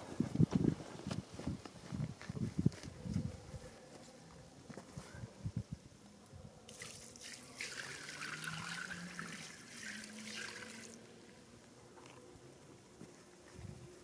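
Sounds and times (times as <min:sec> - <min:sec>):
water splashing from bucket: 0:06.7 - 0:11.0.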